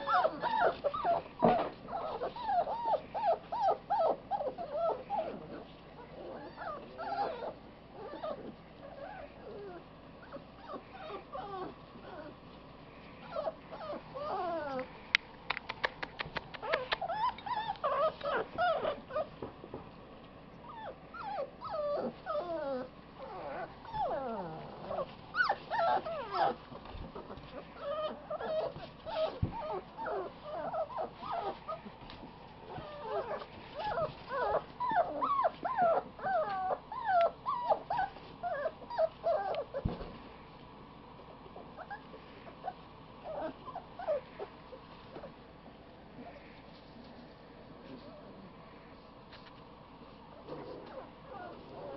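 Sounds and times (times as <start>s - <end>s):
puppies whimpering and whining: 0.0s - 15.0s, 16.3s - 19.5s, 20.5s - 40.3s, 41.2s - 46.8s, 50.0s - 51.9s.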